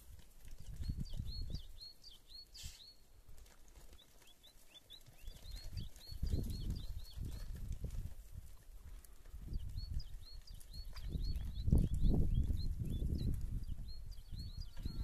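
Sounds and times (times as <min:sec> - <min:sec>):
small bird chirping: 0:00.6 - 0:03.0, 0:03.9 - 0:07.7, 0:09.4 - 0:15.0.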